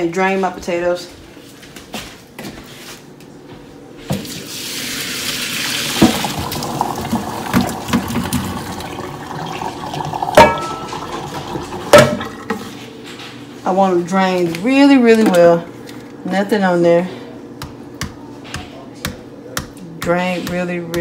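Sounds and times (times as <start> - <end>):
water splashing into colander: 4.2 - 12.0
pot and potatoes knocking: 10.4 - 11.0, 17.6 - 21.0.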